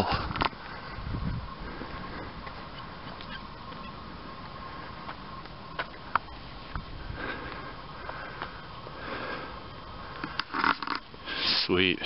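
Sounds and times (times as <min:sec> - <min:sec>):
steady hiss: 0:00.0 - 0:12.0
person breathing and sniffing: 0:07.0 - 0:11.6.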